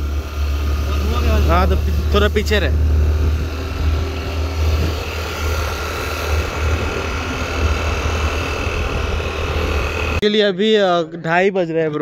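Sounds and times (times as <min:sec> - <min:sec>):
scooter engine running: 0:00.0 - 0:10.2
wind rumbling on microphone: 0:01.8 - 0:10.2.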